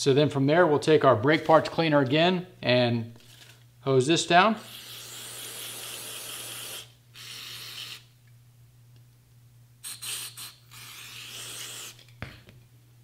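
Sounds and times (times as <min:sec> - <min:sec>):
aerosol can spraying: 0:04.6 - 0:08.1, 0:09.8 - 0:12.0.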